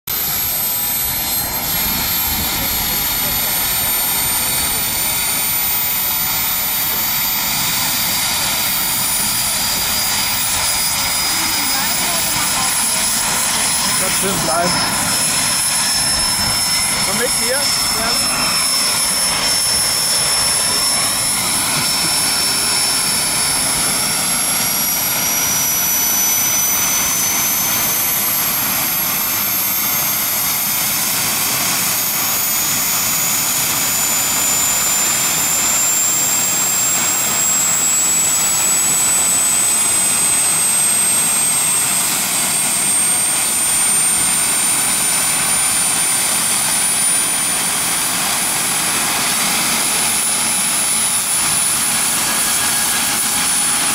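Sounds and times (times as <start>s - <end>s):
gas turbine whine spooling up: 0.1s - 53.9s.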